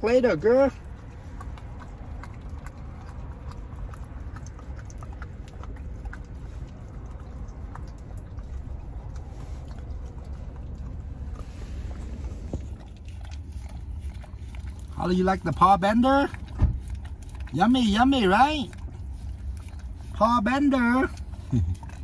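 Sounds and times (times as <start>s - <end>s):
car engine low rumble: 0.0s - 22.0s
dog licking and lapping: 0.0s - 22.0s.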